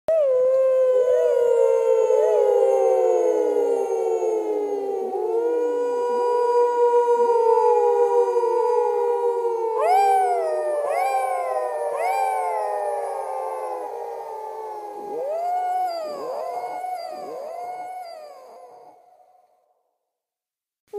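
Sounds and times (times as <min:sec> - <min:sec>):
wolf-like howls: 0:00.1 - 0:19.4.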